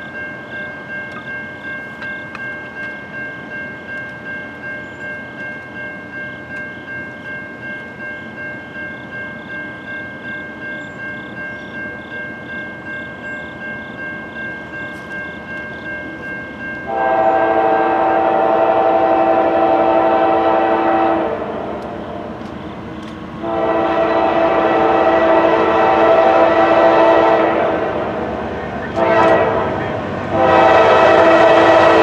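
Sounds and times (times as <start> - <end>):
railroad crossing bell ringing: 0.0 - 32.0
train air horn blast: 16.9 - 22.3, 23.4 - 28.2, 28.8 - 32.0.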